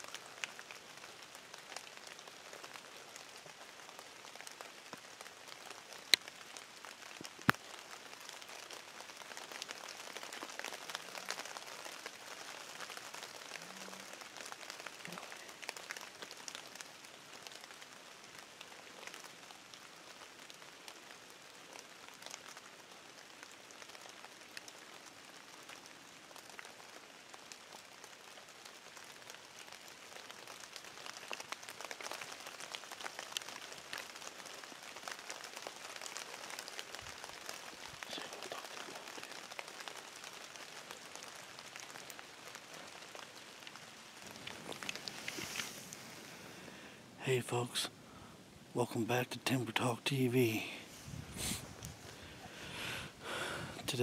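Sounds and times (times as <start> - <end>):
faint pattering hiss: 0.0 - 54.0.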